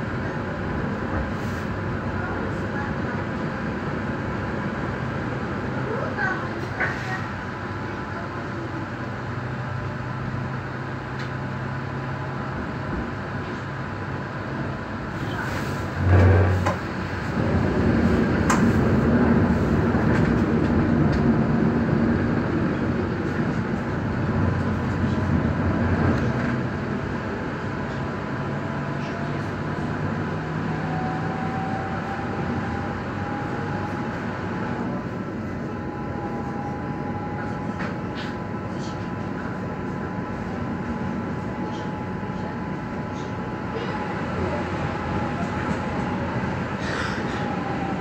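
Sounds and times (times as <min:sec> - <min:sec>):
light-rail car running: 0:00.0 - 0:48.0.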